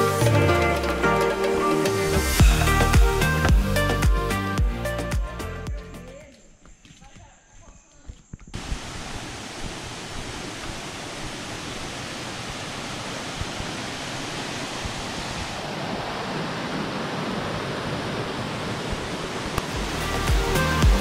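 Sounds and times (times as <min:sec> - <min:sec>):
stream rushing over rocks: 0:08.6 - 0:21.0.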